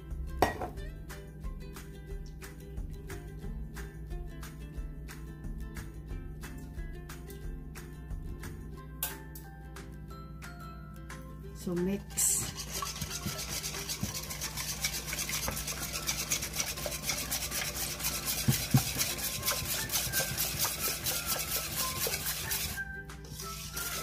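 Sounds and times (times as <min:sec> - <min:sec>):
whisk beating in metal bowl: 0:12.1 - 0:24.0
whisk knocks: 0:12.4 - 0:22.8.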